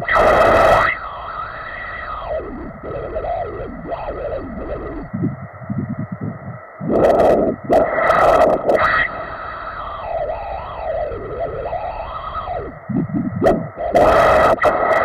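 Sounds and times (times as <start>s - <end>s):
doppler ultrasound blood flow whooshes: 0.0s - 15.0s.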